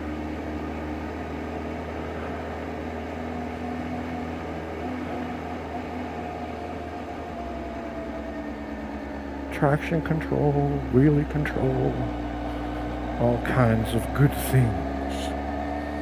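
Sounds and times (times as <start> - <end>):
motorcycle engine humming: 0.0 - 16.0
wind and road noise: 0.0 - 16.0.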